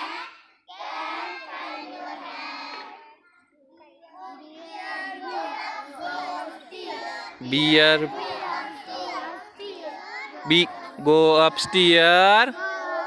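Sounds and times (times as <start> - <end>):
children singing: 0.0 - 3.2, 3.9 - 13.0.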